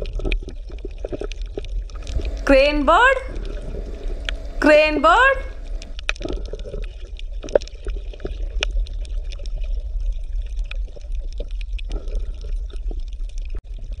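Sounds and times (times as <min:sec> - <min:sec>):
small drips and splashes: 0:00.0 - 0:02.5, 0:03.3 - 0:04.6, 0:05.5 - 0:14.0
low water rumble: 0:00.0 - 0:14.0
faint water wash: 0:01.9 - 0:06.0.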